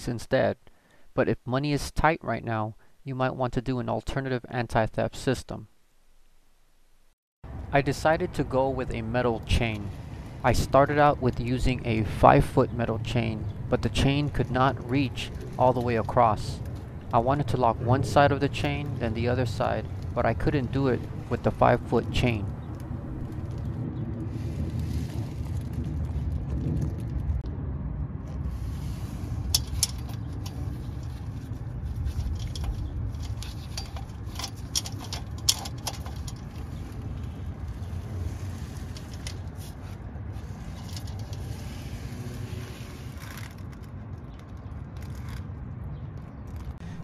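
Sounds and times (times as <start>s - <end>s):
steady low rumble: 6.9s - 47.0s
chain links clicking and scraping: 29.5s - 31.4s, 32.0s - 39.8s, 40.4s - 43.9s.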